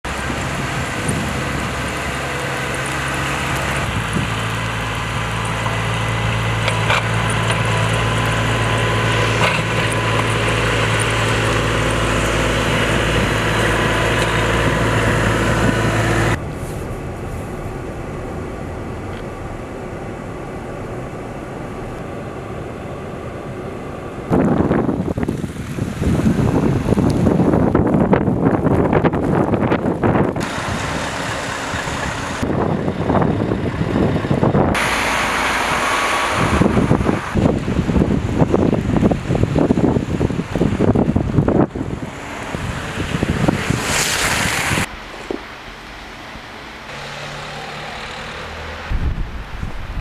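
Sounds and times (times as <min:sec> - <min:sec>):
snowplow engine running: 0:00.0 - 0:50.0
traffic noise: 0:00.0 - 0:50.0
wind buffeting microphone: 0:00.1 - 0:02.8, 0:03.4 - 0:07.0, 0:07.7 - 0:45.4, 0:48.8 - 0:50.0.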